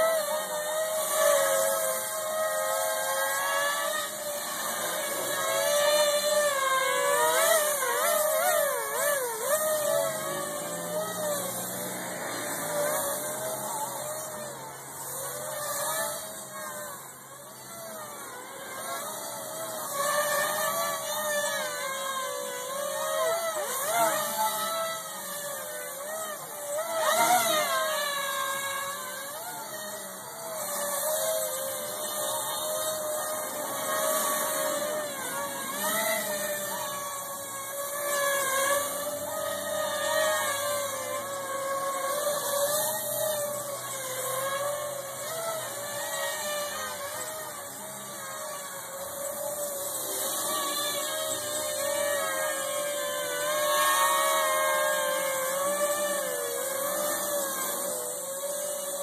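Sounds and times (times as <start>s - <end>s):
multirotor drone motors buzzing: 0.0s - 59.0s.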